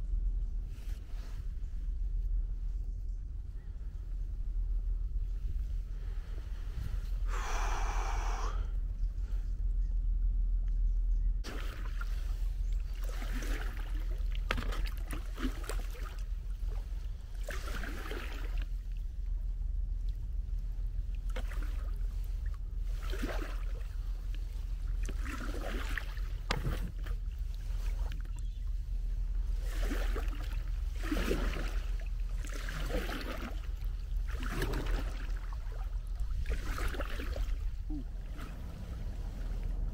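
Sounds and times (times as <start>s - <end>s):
wind rumble on microphone: 0.0s - 39.9s
kayak paddle swishing in water: 11.4s - 19.0s, 21.2s - 39.9s.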